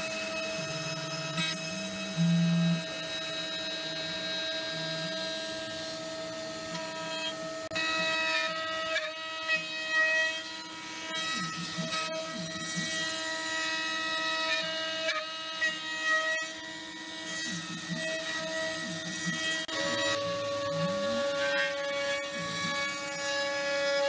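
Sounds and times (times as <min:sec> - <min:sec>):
spindle whine: 0:00.0 - 0:07.5
stepper motor tones: 0:00.0 - 0:08.1.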